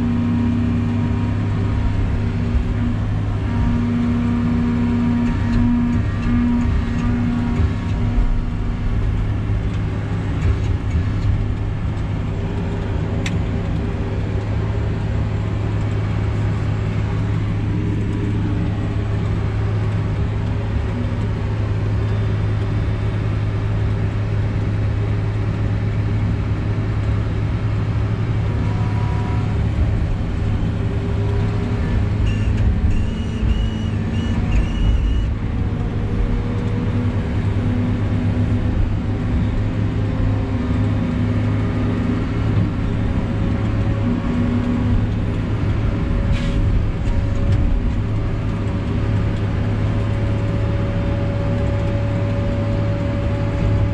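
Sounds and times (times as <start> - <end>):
diesel engine and hydraulics running: 0.0 - 53.9
high-pitched whine: 30.3 - 35.4.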